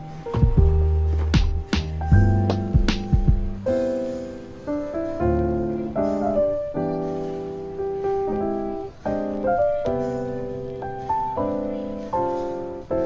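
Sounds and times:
soft piano chords: 0.0 - 13.0.

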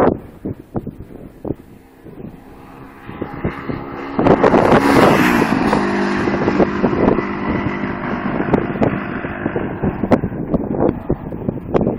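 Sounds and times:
motorcycle passing at speed: 0.0 - 11.9
wind buffeting microphone: 0.0 - 11.9.

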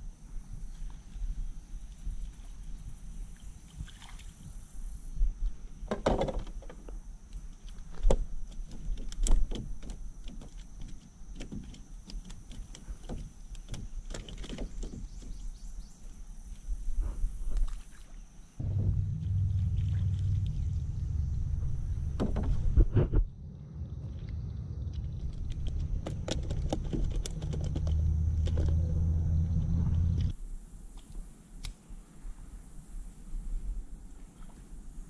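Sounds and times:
knocks and bumps on canoe hull: 5.9 - 6.9, 22.1 - 23.2.

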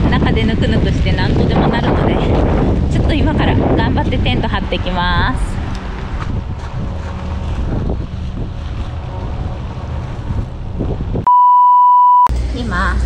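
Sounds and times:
wind buffeting microphone: 0.0 - 11.3
loud high beep: 11.3 - 12.3.

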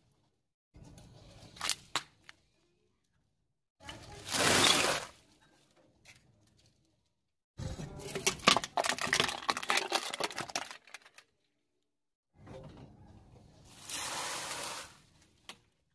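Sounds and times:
plastic box cracking under tyre: 8.1 - 11.2.

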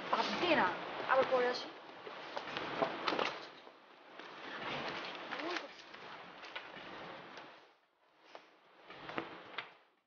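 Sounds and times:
paper and books rustling: 0.0 - 10.0.

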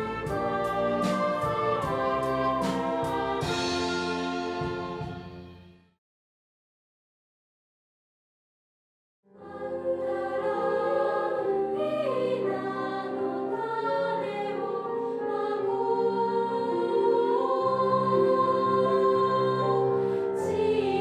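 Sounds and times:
choir singing in harmony: 0.0 - 5.1, 9.4 - 21.0.

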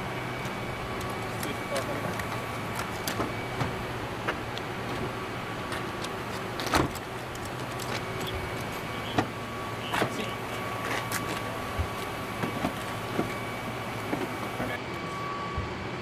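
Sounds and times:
car engine idling: 0.0 - 14.8
faint steady whine: 0.0 - 16.0.

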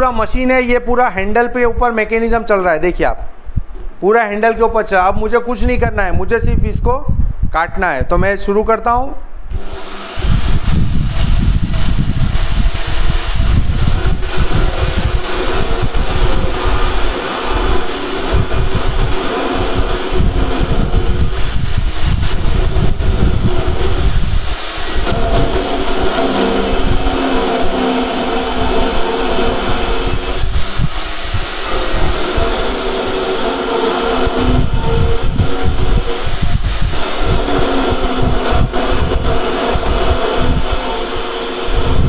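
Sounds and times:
band saw motor whine: 9.5 - 42.0
saw teeth rasping in metal: 9.6 - 42.0.

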